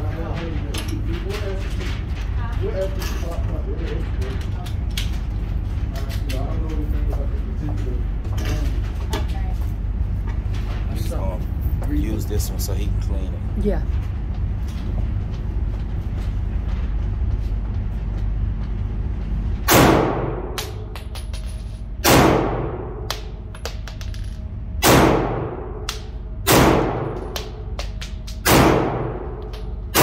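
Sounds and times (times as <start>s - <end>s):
steady low rumble: 0.0s - 30.0s
pistol shots echoing: 19.7s - 20.9s, 22.0s - 23.3s, 24.8s - 27.6s, 28.4s - 30.0s.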